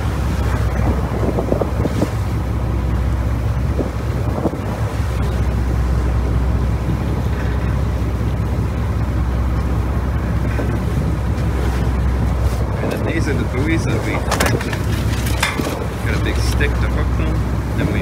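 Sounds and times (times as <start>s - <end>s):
boat engine droning: 0.0s - 18.0s
water rushing: 0.0s - 18.0s
wind: 0.0s - 18.0s.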